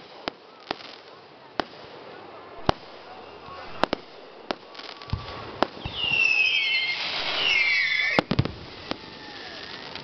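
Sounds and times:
fireworks bangs: 0.0 - 10.0
fireworks whistles gliding down: 2.6 - 10.0.

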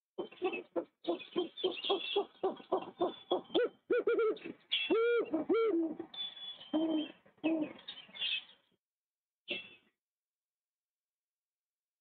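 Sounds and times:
owls calling: 0.2 - 6.0, 6.7 - 7.8.

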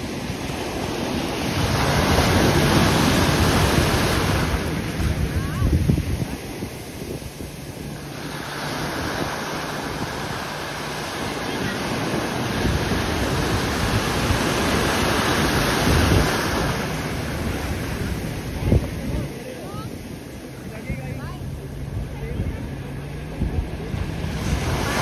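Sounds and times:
sea waves breaking: 0.0 - 25.0
wind buffeting microphone: 0.0 - 25.0.

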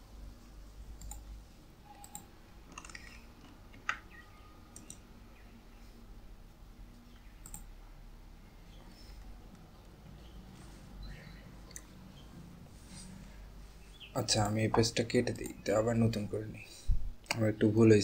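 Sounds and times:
mouse and keyboard clicks: 1.0 - 1.2, 2.0 - 4.2, 7.4 - 7.7.

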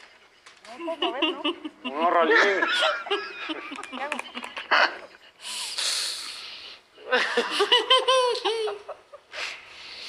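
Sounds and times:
woman laughing: 0.8 - 5.2, 7.1 - 9.3.

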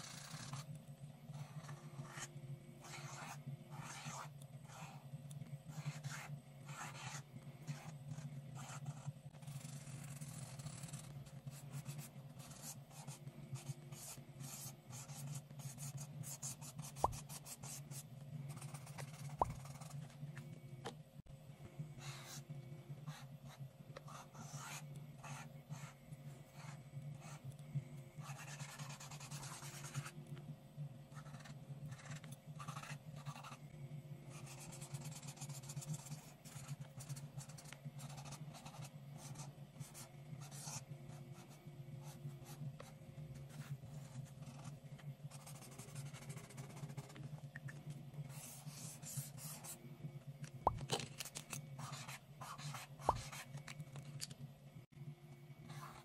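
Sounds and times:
marker scratching on paper: 0.0 - 0.7, 1.3 - 5.0, 5.7 - 20.1, 23.1 - 27.4, 28.2 - 30.1, 31.1 - 33.6, 34.3 - 40.8, 41.4 - 44.7, 45.3 - 47.2, 48.3 - 49.8, 51.8 - 53.5.

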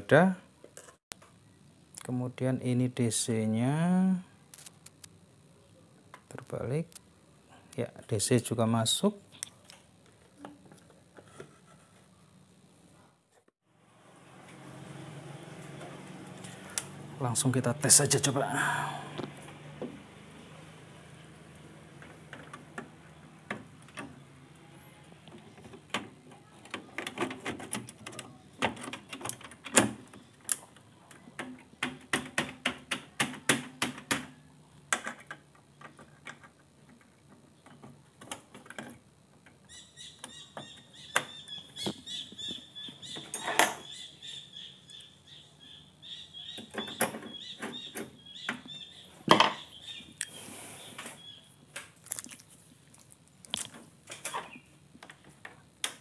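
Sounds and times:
rapid high chirping: 39.7 - 51.6.

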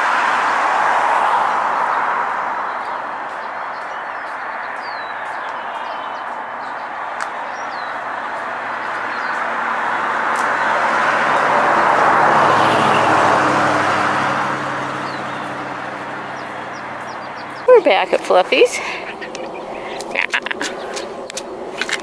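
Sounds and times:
vehicle passing: 0.0 - 22.0
bird chirps: 2.6 - 8.2, 8.8 - 9.6, 14.9 - 21.4.

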